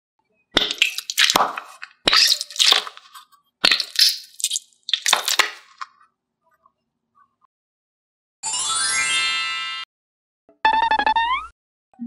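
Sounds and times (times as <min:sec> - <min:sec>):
stress ball squeezed crackling: 0:00.6 - 0:05.8.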